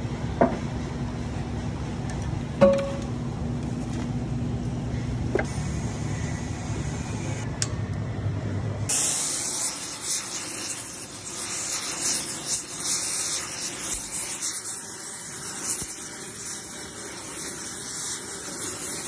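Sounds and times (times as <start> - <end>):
torch flame hissing: 5.4 - 7.5, 8.8 - 19.0.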